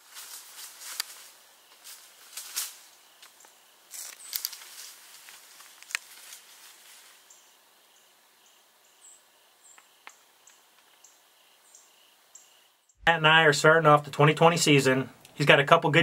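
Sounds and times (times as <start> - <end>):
soft rustles and cracks: 0.0 - 7.3
insect chirping: 0.0 - 13.0.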